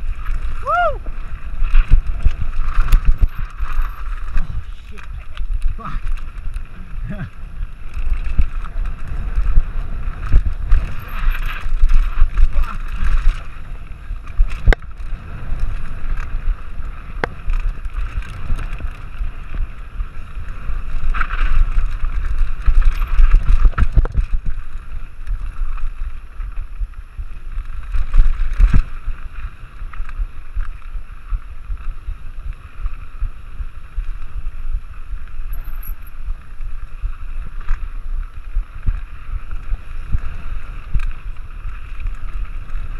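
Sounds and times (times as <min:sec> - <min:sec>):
tyres rolling on dirt and gravel: 0:00.0 - 0:42.9
wind buffeting microphone: 0:00.0 - 0:42.9
bike knocks and rattles: 0:01.2 - 0:25.8.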